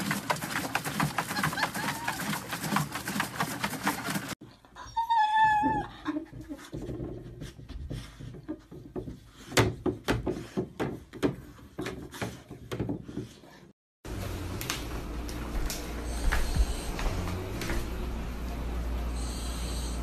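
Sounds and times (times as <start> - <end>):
dog splashing in plastic cooler: 0.0 - 4.4.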